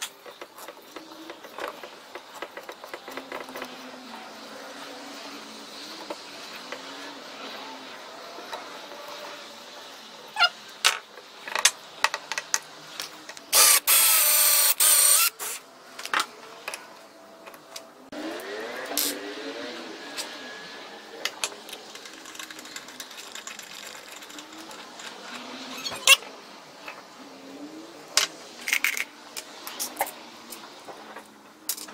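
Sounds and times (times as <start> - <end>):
loud noisy whir: 0.9 - 10.4, 17.5 - 31.3
screwdriver turning a screw in wood: 13.6 - 15.3
squeaks and scrapes: 21.7 - 26.4.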